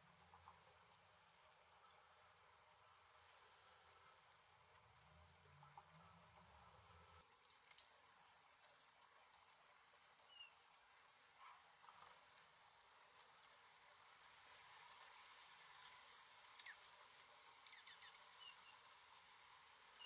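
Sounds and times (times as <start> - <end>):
small songbirds chirping: 6.0 - 20.0.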